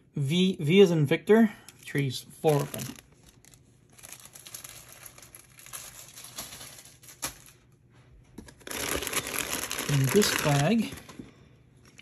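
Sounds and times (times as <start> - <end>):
plastic bags crinkling: 1.8 - 7.8, 8.4 - 11.2.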